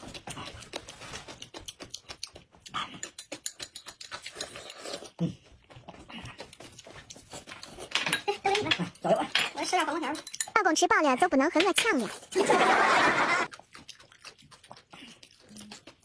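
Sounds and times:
chewing crunchy cucumber: 0.0 - 7.9, 13.5 - 16.0
slurping porridge: 2.6 - 8.0, 12.1 - 16.0.

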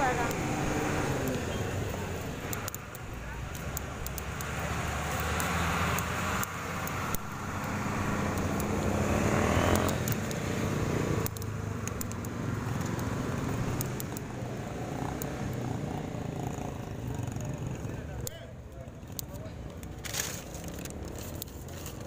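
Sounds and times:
light clicks: 1.2 - 8.8, 9.7 - 10.4, 11.2 - 13.1, 13.7 - 14.3.

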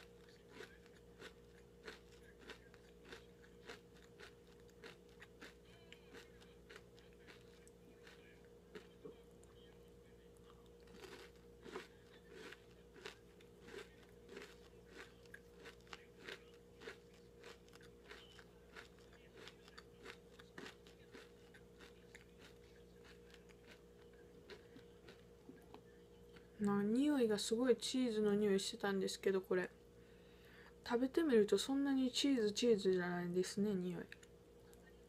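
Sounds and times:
crisp chewing crunches: 0.0 - 9.8, 10.4 - 26.5.

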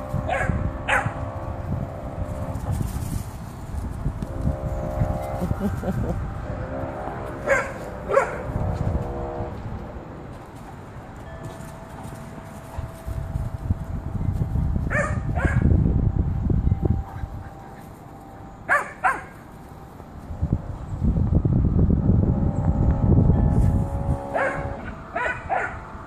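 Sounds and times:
low rumbling noise: 0.0 - 26.0
dogs barking: 0.2 - 1.4, 7.2 - 8.6, 14.9 - 15.7, 17.1 - 19.6, 24.2 - 25.9.

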